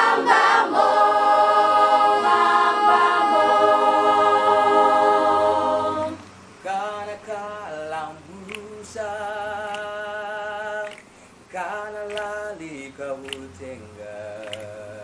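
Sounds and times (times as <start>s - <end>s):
choir singing a hymn a cappella: 0.0s - 10.9s.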